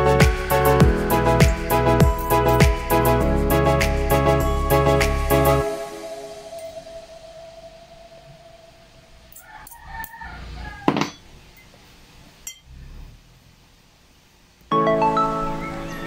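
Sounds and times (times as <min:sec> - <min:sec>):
held music note: 0:00.0 - 0:09.4.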